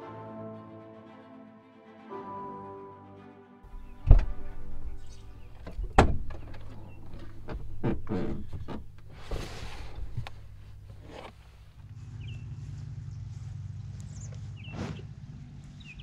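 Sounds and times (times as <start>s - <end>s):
car door unlatching click: 3.7s - 11.4s
plastic tote scraping and rustling: 6.4s - 11.7s.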